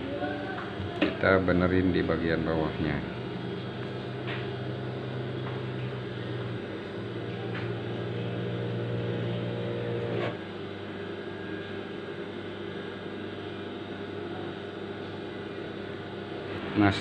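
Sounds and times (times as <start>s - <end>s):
sewing machine motor humming: 0.0s - 10.5s.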